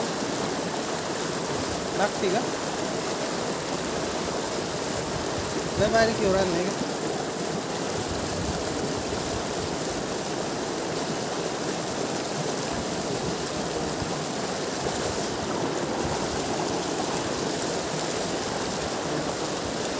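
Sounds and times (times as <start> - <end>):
river water rushing over rocks: 0.0 - 19.9.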